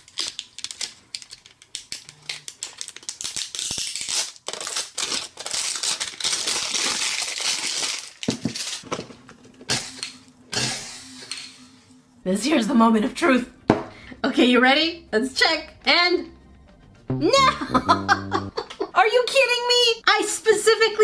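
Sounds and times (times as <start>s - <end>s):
plastic packaging crinkling: 0.0s - 9.0s.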